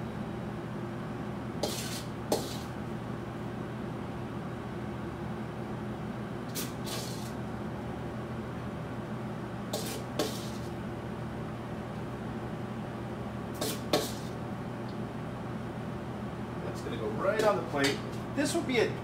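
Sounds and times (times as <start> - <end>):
spoon scraping plate: 1.6 - 2.7.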